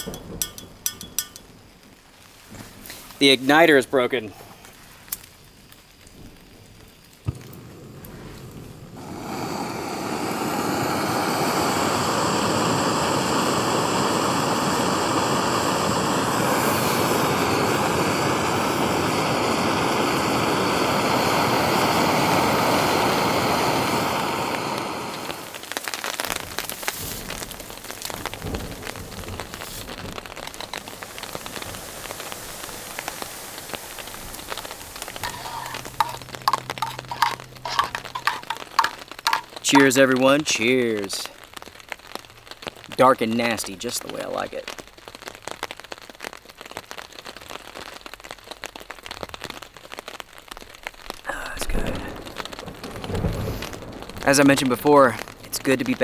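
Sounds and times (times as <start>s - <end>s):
gas stove hissing: 0.0s - 1.5s, 7.1s - 26.0s, 26.6s - 40.5s
spoon clinking against mug: 0.0s - 1.5s, 35.2s - 39.9s.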